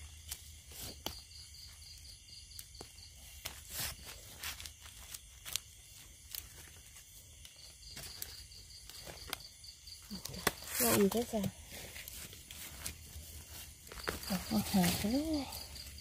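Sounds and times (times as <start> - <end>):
high insect trill: 0.0 - 16.0
rustling in dry leaves: 3.1 - 9.2, 10.2 - 16.0.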